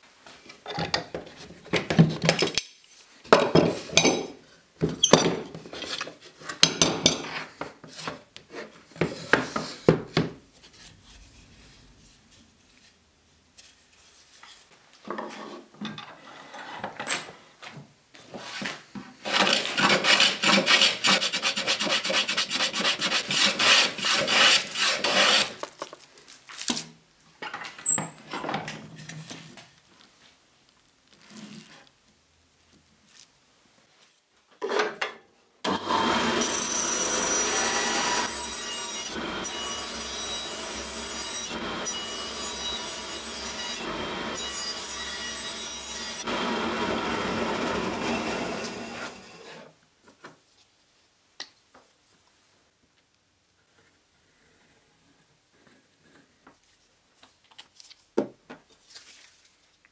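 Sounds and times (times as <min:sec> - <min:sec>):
hand tool scraping wood: 0:18.4 - 0:25.6.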